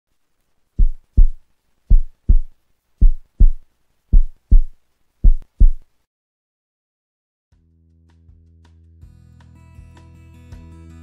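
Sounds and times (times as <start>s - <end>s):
heartbeat thumps: 0.8s - 5.8s.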